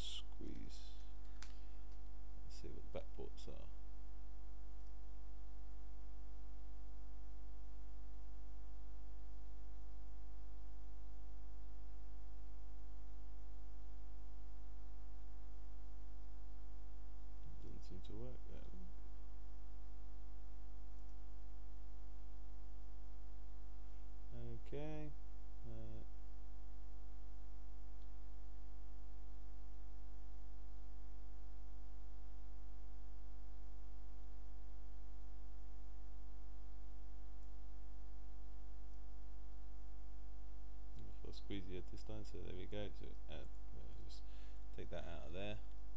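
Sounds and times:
electrical mains hum: 0.0 - 45.9.

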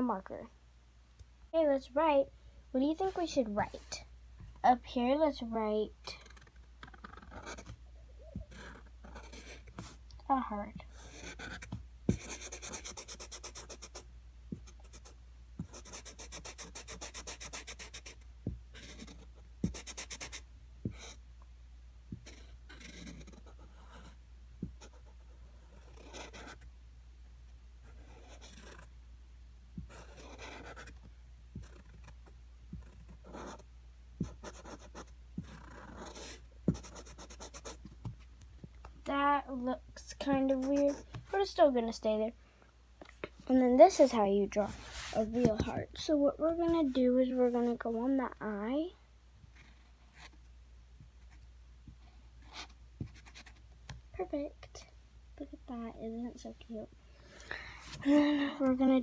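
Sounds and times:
marker scratching on plastic: 6.0 - 10.0, 10.9 - 21.2, 22.1 - 26.7, 27.8 - 28.9, 29.8 - 38.3, 40.2 - 41.5, 43.9 - 45.8, 52.4 - 54.0.

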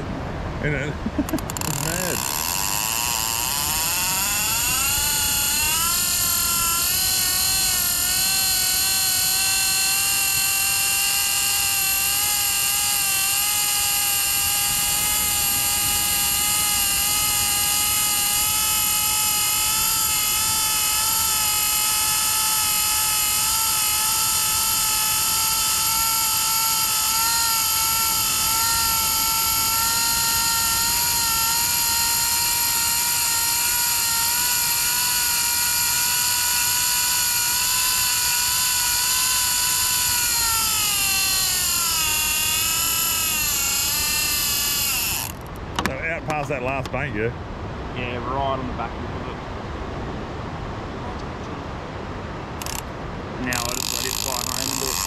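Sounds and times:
drone propellers whining: 0.6 - 46.9, 52.6 - 55.0.

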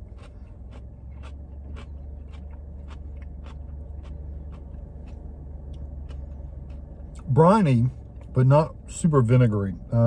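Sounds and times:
crunchy chewing: 0.0 - 7.4
low car cabin hum: 0.0 - 10.0.

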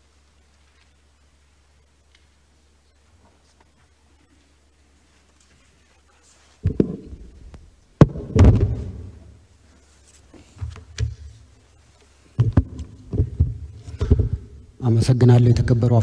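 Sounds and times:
microphone handling knocks: 6.6 - 9.3, 12.4 - 14.6.

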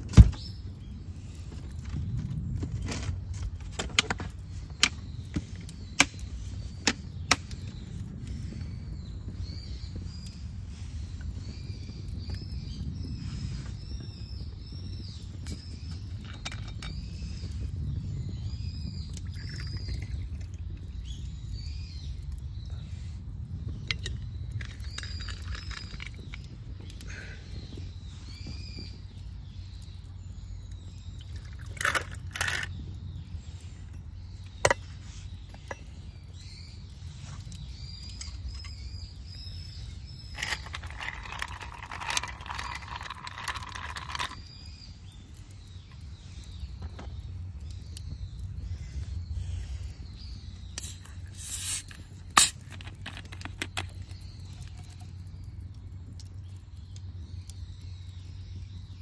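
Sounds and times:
campfire crackling: 0.0 - 59.0
bottle opening hiss and click: 50.7 - 54.0.

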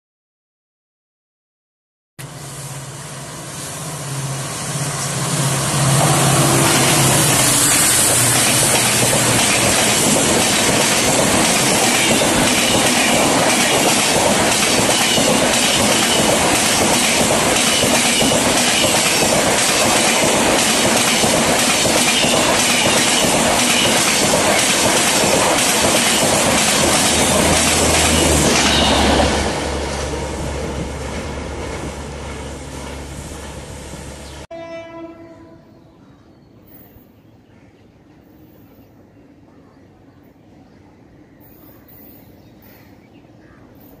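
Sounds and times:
diesel train passing at speed: 2.2 - 44.0
wheels clacking over rail joints: 5.9 - 33.6.

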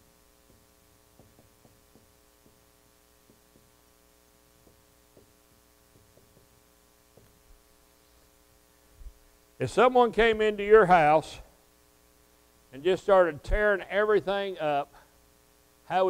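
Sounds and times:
electrical hum: 0.0 - 16.0
marker writing on a whiteboard: 0.4 - 3.8, 4.6 - 7.4.

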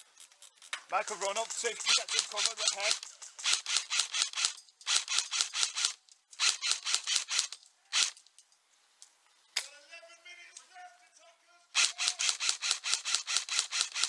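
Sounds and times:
airsoft rifle firing: 1.4 - 8.2, 11.8 - 14.0.

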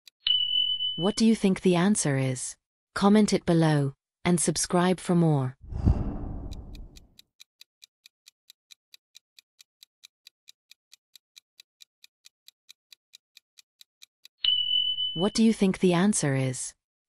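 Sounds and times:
deep low hit: 5.7 - 7.0
clock ticking: 6.3 - 7.0.

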